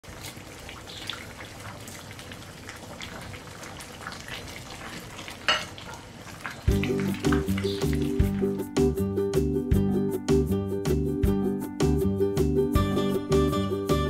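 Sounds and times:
broth simmering hiss: 0.1s - 8.7s.

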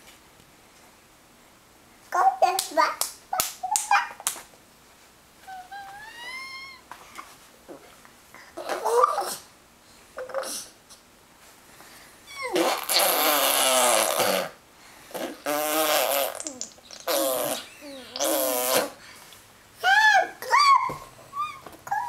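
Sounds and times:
baby babbling: 5.5s - 6.8s, 16.4s - 18.4s
baby squealing: 5.5s - 6.8s, 12.3s - 13.9s, 20.5s - 22.0s.

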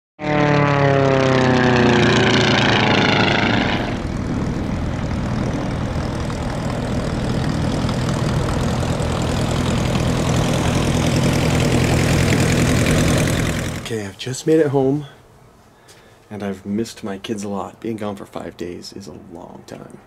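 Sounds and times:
propeller engine idling: 0.2s - 14.0s
propeller plane passing: 0.2s - 14.1s.

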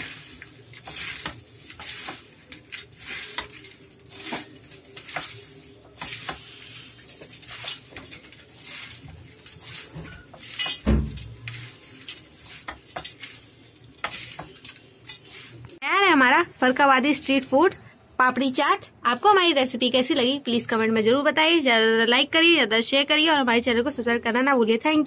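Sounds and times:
crisp pieces crackling: 0.0s - 15.8s.

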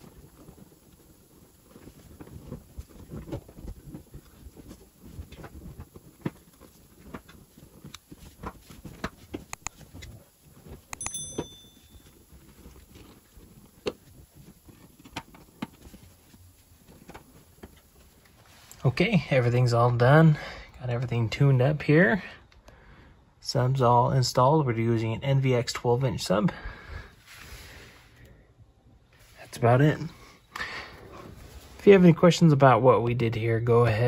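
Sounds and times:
seat cushion rustling: 0.0s - 18.7s
short metallic clink: 11.0s - 12.1s.

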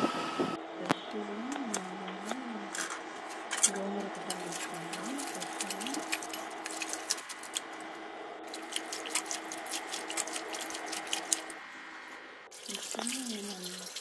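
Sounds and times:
hand washing leaves in water: 1.4s - 11.6s, 12.5s - 14.0s
small splashes and drips: 4.3s - 7.7s, 8.5s - 11.6s, 12.5s - 14.0s.

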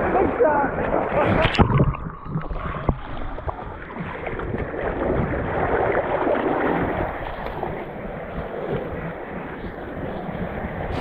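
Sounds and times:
sea swell sloshing against rocks: 2.6s - 11.0s.

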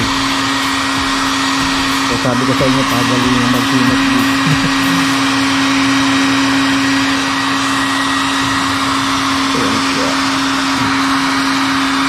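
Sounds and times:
hair dryer blowing: 0.0s - 12.0s.

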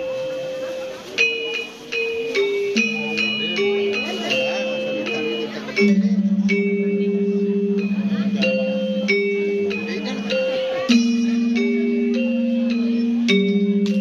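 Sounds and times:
gamelan metallophones playing: 0.0s - 14.0s.

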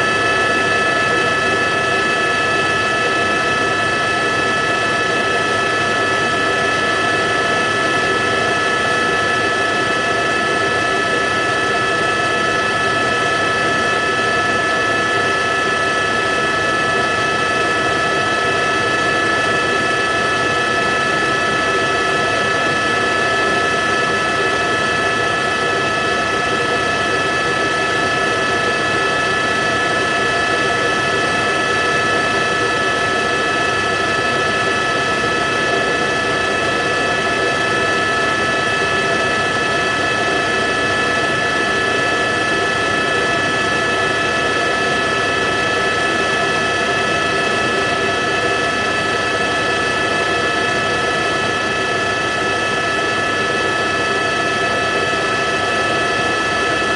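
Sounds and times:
aircraft engine drone: 0.0s - 56.9s.

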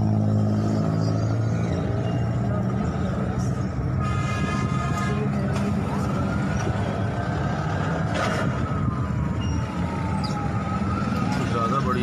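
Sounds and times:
siren wailing: 5.8s - 12.0s.

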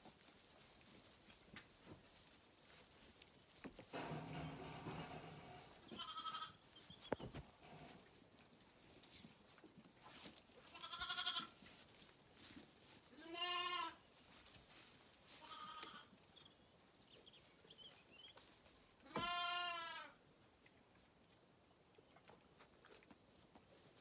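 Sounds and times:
lambs bleating: 5.9s - 6.6s, 10.6s - 11.6s, 13.1s - 14.0s, 15.4s - 16.1s, 19.0s - 20.2s.

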